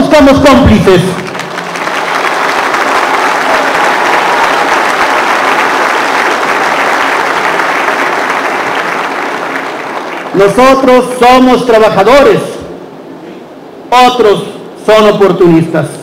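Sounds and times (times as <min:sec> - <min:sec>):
audience applauding: 0:00.8 - 0:11.0.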